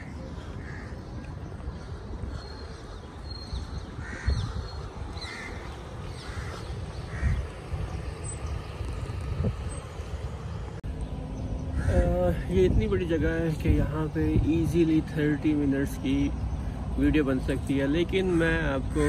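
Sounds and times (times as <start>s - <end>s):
crows cawing: 0.0s - 2.7s, 4.0s - 7.5s, 11.8s - 12.1s
low outdoor rumble: 0.0s - 19.0s.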